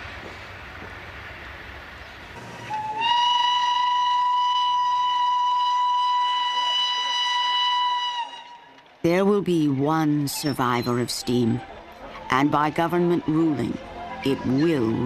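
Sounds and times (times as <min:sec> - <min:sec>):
steam locomotive whistle: 0:02.4 - 0:08.9.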